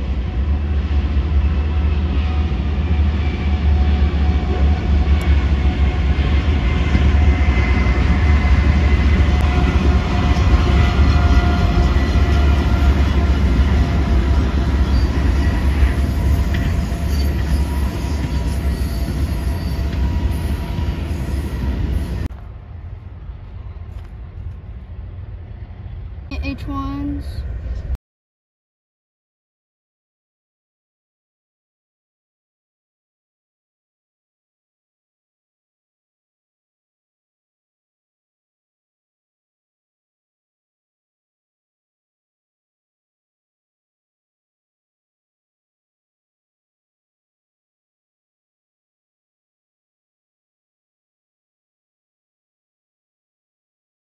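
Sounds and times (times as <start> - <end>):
locomotive engines rumbling: 0.0 - 28.0
steel wheel squeal: 14.8 - 22.3.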